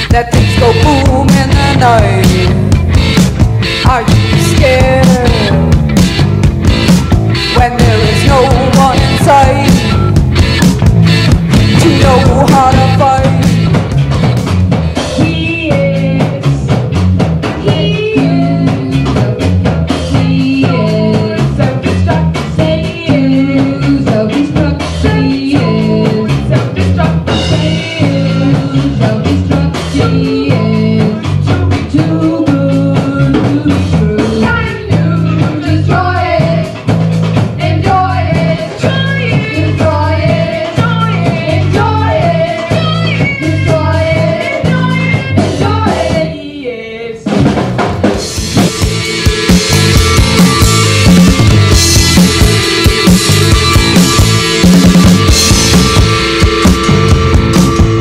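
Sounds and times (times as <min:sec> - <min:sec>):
person singing: 0:00.0 - 0:02.7, 0:03.8 - 0:05.8, 0:07.4 - 0:10.0, 0:11.6 - 0:13.6, 0:17.5 - 0:19.4, 0:20.0 - 0:36.8
rock band playing: 0:00.0 - 0:46.4, 0:47.3 - 0:58.0.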